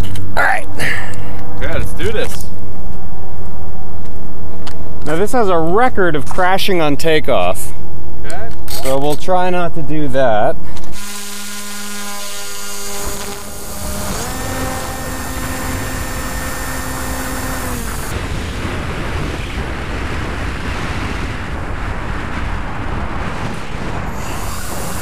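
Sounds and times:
electric motor whining: 0:10.6 - 0:18.2, 0:24.1 - 0:25.0
wind rushing on microphone: 0:13.5 - 0:25.0.

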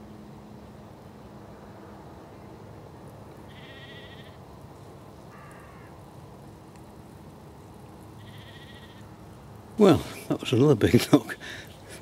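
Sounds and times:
low background hiss: 0:00.0 - 0:12.0
sheep bleating: 0:03.5 - 0:04.4, 0:08.2 - 0:09.0.

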